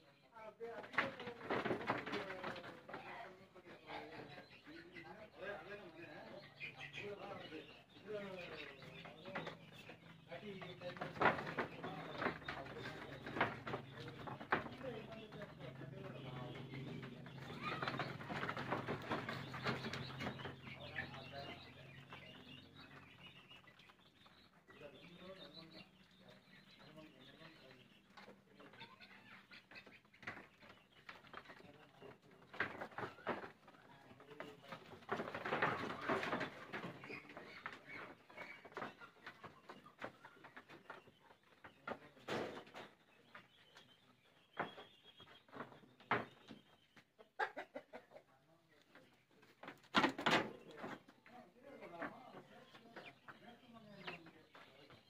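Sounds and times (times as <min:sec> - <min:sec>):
small birds chirping: 0:00.0 - 0:55.0
knocks and clatter: 0:00.8 - 0:03.1, 0:08.8 - 0:24.4, 0:32.4 - 0:43.5, 0:49.6 - 0:51.1.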